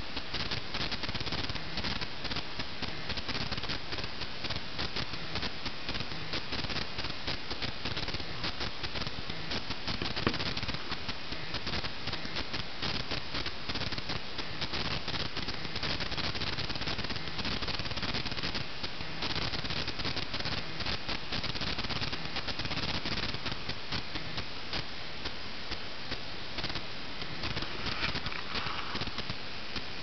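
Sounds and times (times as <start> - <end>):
hamster rustling in wood shavings: 27.4 - 29.2.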